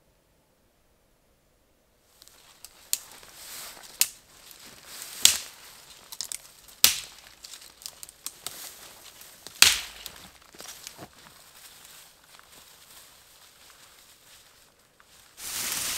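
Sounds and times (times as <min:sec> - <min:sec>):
twigs rustling: 0:02.1 - 0:15.9
branches snapping: 0:02.2 - 0:12.7.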